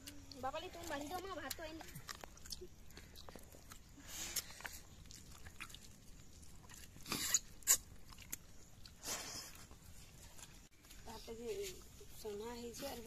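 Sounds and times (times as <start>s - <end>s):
person eating mouth sounds: 6.6s - 9.8s.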